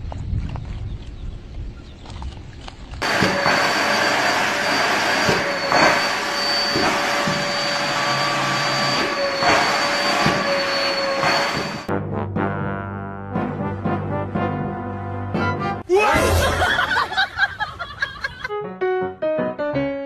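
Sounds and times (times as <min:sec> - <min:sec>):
vacuum cleaner running: 0:03.0 - 0:11.9.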